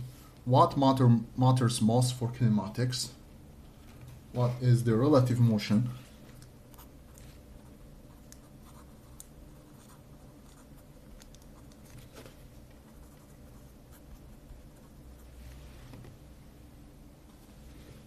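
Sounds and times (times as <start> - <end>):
steady low hum: 0.0 - 18.0
pen scratching on paper: 6.8 - 12.1, 12.8 - 15.3.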